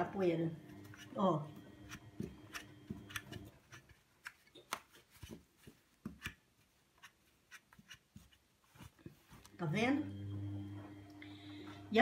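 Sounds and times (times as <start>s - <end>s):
cloth rubbing on plastic and tiles: 0.6s - 9.9s.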